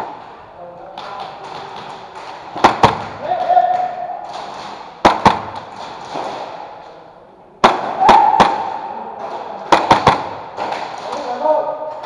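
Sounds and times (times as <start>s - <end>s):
airsoft gunfire cracks: 5.0s - 6.6s, 7.6s - 8.9s, 9.7s - 11.1s.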